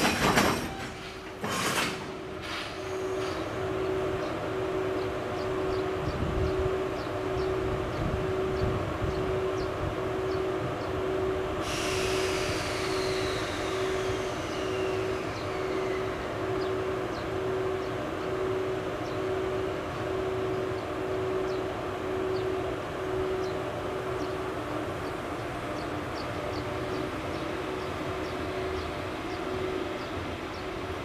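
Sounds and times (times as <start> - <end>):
electric locomotive humming: 0.0 - 31.0
hiss: 11.6 - 16.0.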